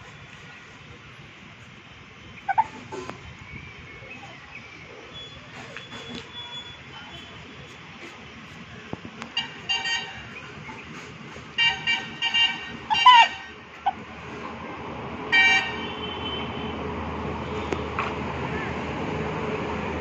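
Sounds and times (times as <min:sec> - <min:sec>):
low traffic hum: 0:00.0 - 0:20.0
vehicle horns honking: 0:09.3 - 0:10.4, 0:11.6 - 0:13.6, 0:15.3 - 0:16.8.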